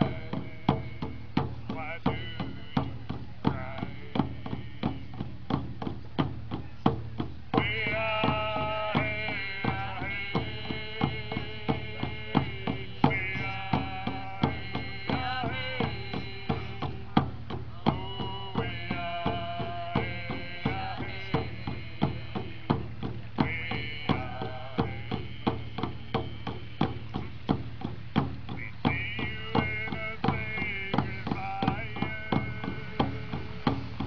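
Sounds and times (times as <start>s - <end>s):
voices singing together: 0.0s - 6.3s, 7.5s - 34.0s
hand drums beating: 0.0s - 34.0s.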